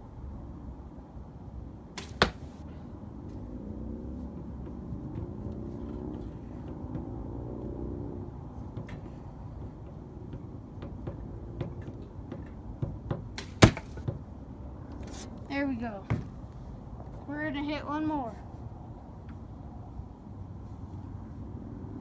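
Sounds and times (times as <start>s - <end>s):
arrow striking target: 2.0s - 2.6s, 13.4s - 14.1s.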